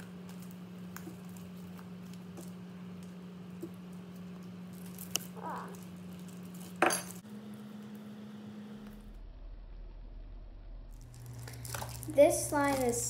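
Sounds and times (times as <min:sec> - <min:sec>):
slime squishing and crackling: 0:00.0 - 0:06.8, 0:10.9 - 0:13.0
low hum: 0:00.0 - 0:13.0.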